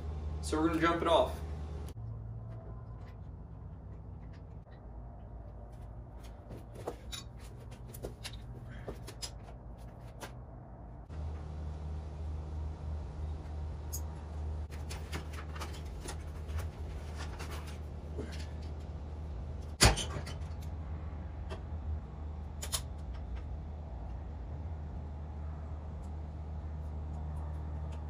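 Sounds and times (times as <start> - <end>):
steady low hum: 0.0 - 28.0
clicks and rattles of hands working: 14.7 - 19.0.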